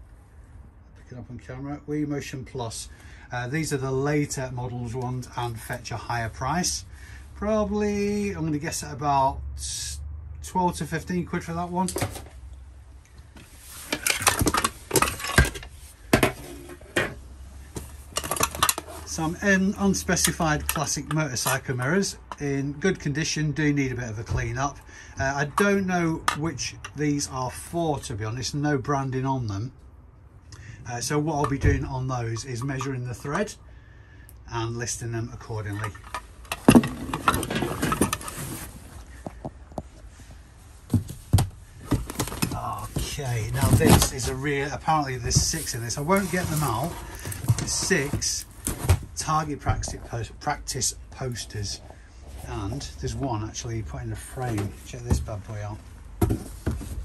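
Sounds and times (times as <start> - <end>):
items rummaged in a box: 13.6 - 17.2, 17.8 - 21.7, 35.6 - 40.0, 40.9 - 50.2
metal and glass items clinking: 13.9 - 17.0, 18.1 - 19.1.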